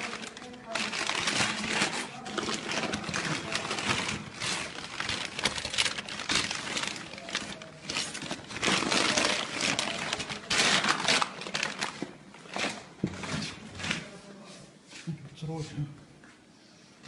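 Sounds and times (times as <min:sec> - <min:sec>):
tissue paper crumpling: 0:00.0 - 0:12.8.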